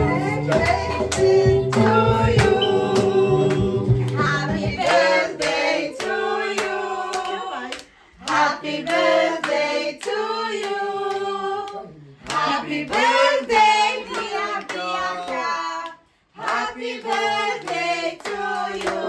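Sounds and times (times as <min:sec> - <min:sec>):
recorded music with bass line: 0:00.0 - 0:04.8
group singing birthday song: 0:00.0 - 0:19.0
rhythmic hand clapping: 0:00.0 - 0:19.0.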